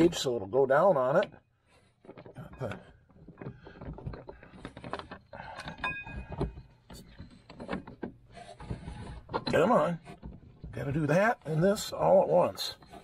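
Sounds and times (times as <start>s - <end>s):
chain and gears clinking: 3.6s - 7.2s
metallic ring: 5.6s - 6.4s.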